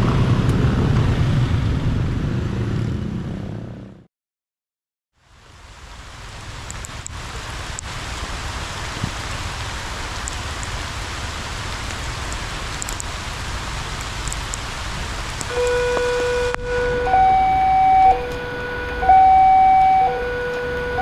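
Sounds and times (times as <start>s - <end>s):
heavy rain on road: 0.0s - 2.4s, 5.2s - 21.0s
level crossing warning alarm: 15.5s - 21.0s.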